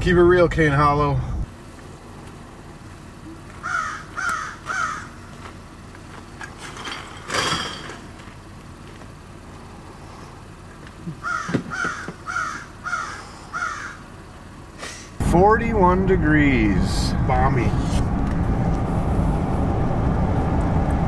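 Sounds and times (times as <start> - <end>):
crow cawing: 3.6 - 5.2, 11.2 - 14.1.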